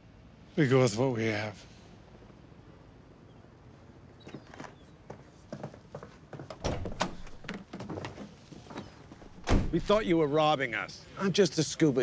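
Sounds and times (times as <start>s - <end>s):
van door thunks: 9.3s - 9.9s.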